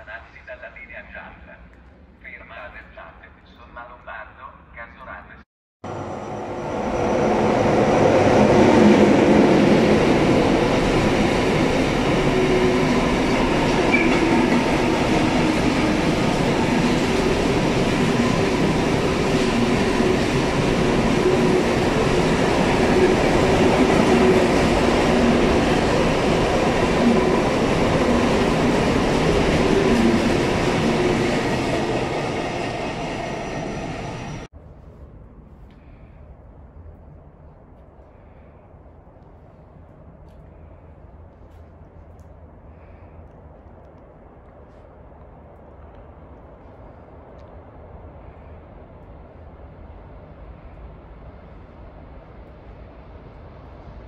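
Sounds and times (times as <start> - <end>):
freight train passing: 5.8 - 34.5, 44.7 - 54.0.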